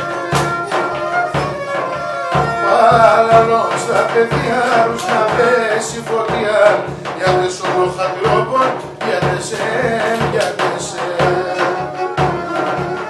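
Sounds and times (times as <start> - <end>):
drum beating rhythm: 0.0 - 13.0
held melody line: 0.0 - 13.0
man singing: 2.3 - 13.0.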